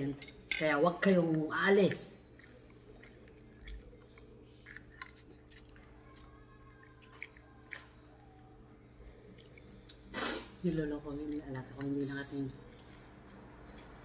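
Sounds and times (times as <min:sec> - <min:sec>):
close-up chewing: 0:02.2 - 0:10.1.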